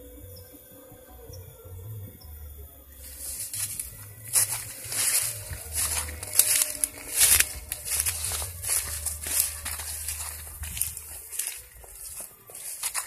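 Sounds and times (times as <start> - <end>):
footsteps through leafy undergrowth: 3.0 - 13.0.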